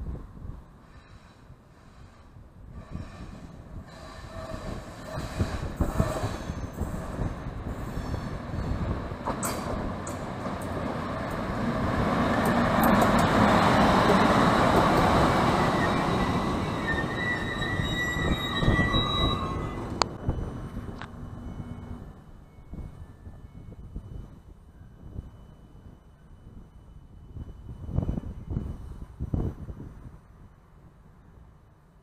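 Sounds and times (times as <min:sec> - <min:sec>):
train wheels rumbling on rails: 0:00.0 - 0:30.5
train brake squeal: 0:00.8 - 0:08.8, 0:13.8 - 0:20.6.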